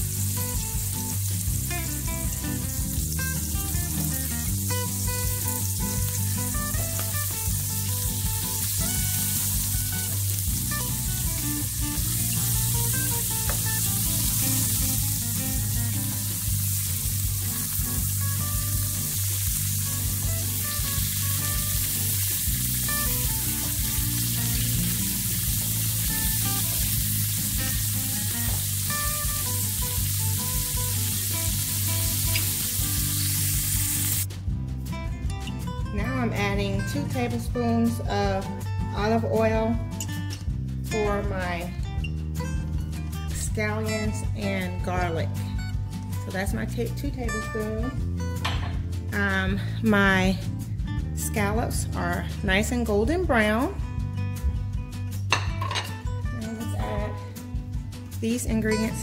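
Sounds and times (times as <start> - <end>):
scallops sizzling in oil: 0.0 - 34.3.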